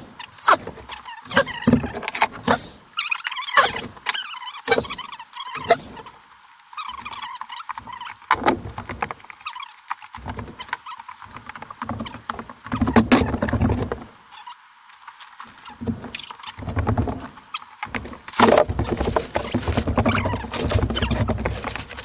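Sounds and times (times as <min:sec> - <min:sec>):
rapid clicks and knocks: 0:15.8 - 0:22.0.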